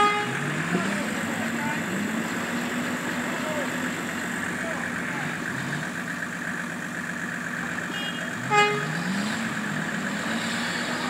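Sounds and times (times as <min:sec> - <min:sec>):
horn toot: 0:00.0 - 0:00.9, 0:07.9 - 0:09.5
vehicle engine revving: 0:00.0 - 0:11.0.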